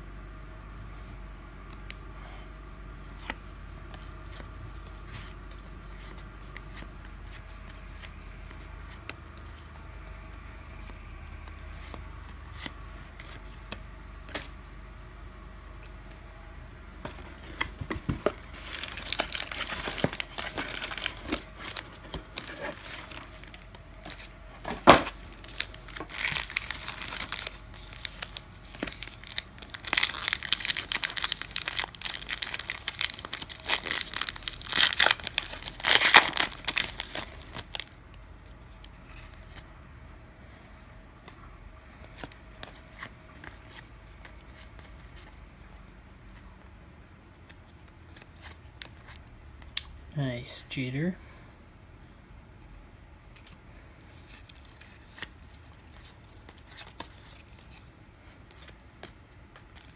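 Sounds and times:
wrapper being torn and crinkled: 25.5s - 37.8s.

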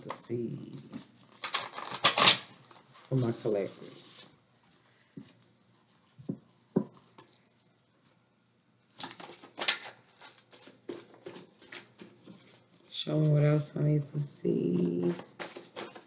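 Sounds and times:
papery rustling and card flicks: 9.0s - 12.2s
cards being shuffled: 9.0s - 12.8s, 14.6s - 16.0s.

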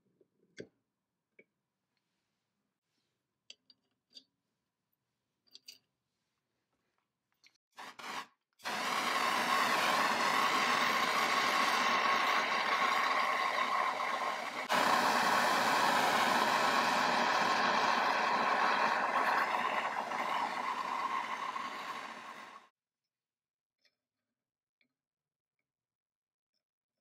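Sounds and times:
gas torch hissing: 7.8s - 22.7s.

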